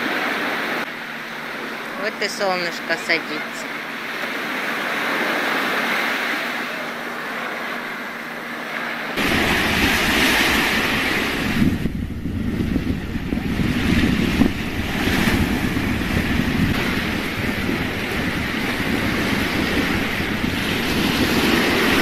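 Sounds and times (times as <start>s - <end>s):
sea surf washing on beach: 0.0s - 22.0s
wind buffeting microphone: 9.2s - 22.0s.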